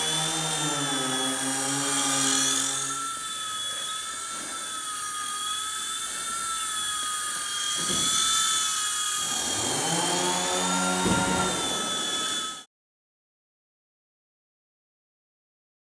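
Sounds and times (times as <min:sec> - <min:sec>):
rc helicopter motor whining: 0:00.0 - 0:12.7.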